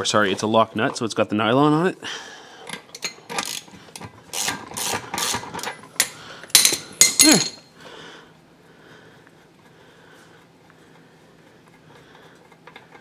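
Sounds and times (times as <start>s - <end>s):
socket ratchet clicking: 2.7s - 6.8s
sharp metallic clanks: 5.2s - 7.7s.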